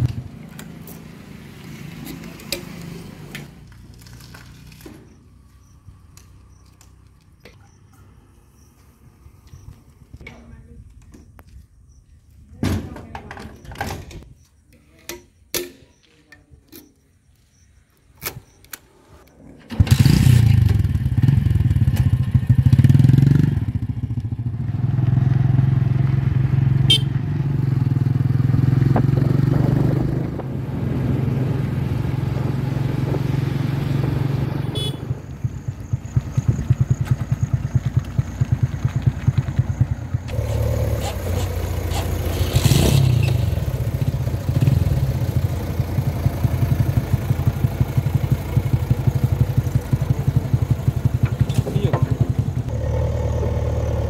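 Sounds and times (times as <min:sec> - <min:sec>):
motorcycle engine running: 0:19.7 - 0:54.0.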